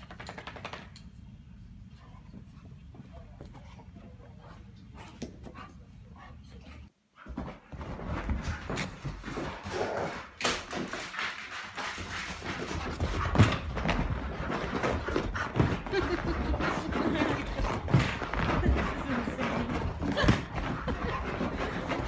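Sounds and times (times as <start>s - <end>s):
dog paws thudding on floor: 10.5s - 22.0s.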